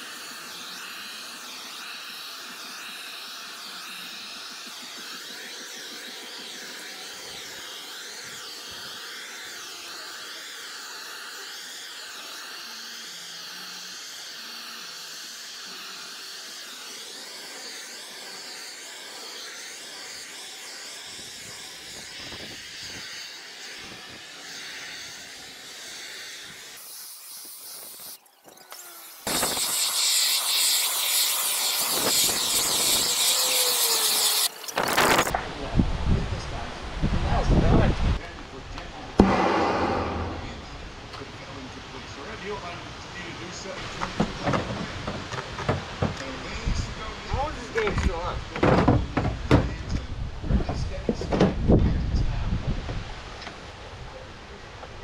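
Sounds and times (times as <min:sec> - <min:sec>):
loud rushing hiss: 0:00.0 - 0:28.2, 0:28.8 - 0:35.9, 0:39.1 - 0:49.2
heat gun hissing: 0:00.0 - 0:35.4, 0:39.2 - 0:49.2.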